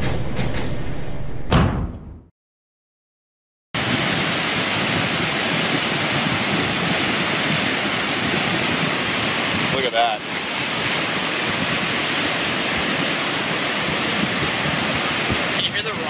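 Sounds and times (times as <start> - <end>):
flood water rushing: 3.8 - 16.0.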